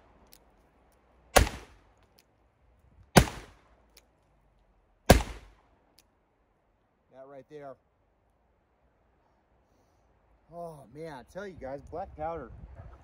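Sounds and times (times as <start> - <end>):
revolver gunshots: 1.4 - 1.8, 3.2 - 3.6, 5.1 - 5.6.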